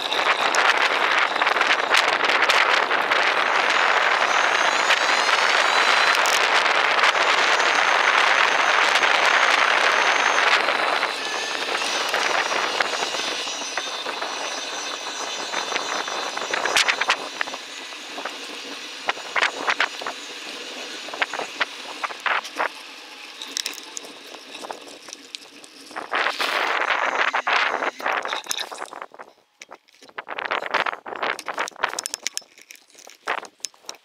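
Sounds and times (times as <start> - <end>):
bicycle tyre and wind rush: 0.0 - 34.0
irregular clicks and crackles: 21.3 - 34.0.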